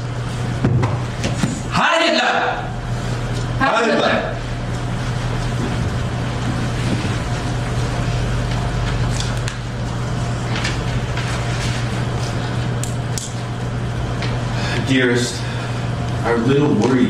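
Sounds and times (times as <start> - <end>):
steady low hum: 0.0 - 17.0
pages rustling: 8.4 - 12.8.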